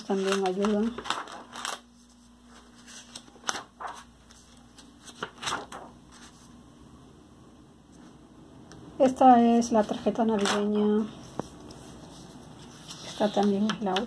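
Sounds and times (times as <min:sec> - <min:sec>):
sketchbook pages turning: 0:00.0 - 0:06.5, 0:09.8 - 0:14.0.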